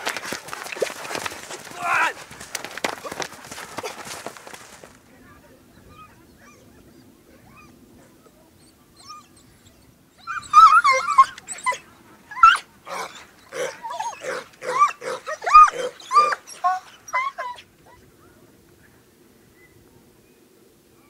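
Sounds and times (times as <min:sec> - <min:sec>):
hounds baying and howling: 0:05.9 - 0:18.1.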